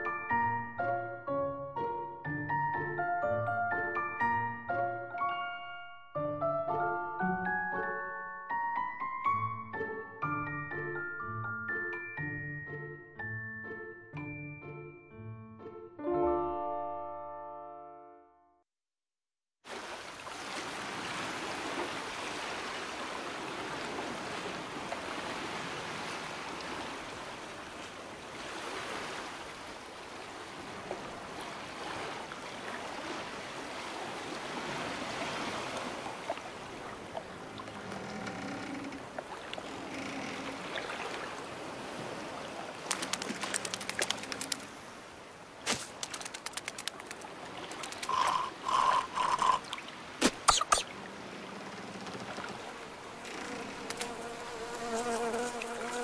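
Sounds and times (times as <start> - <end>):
sea water lapping: 19.7 - 54.4
rapid sharp clicks: 45.9 - 48.3.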